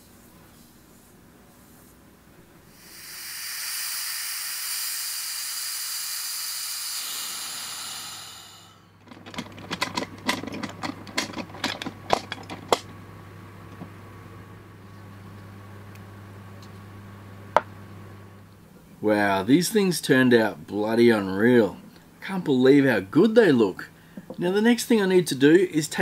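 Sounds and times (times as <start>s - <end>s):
compressed air hissing from valve: 2.7s - 9.0s
metal clanks and clicks: 9.0s - 13.0s.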